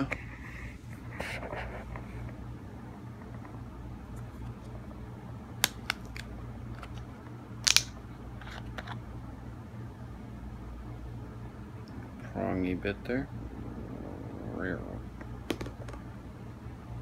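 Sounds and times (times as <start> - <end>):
drink carton cap crackling: 5.6 - 9.0.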